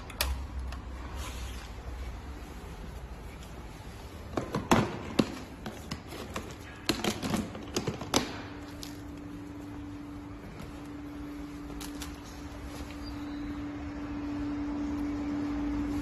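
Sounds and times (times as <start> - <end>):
faint steady hum: 5.2 - 16.0.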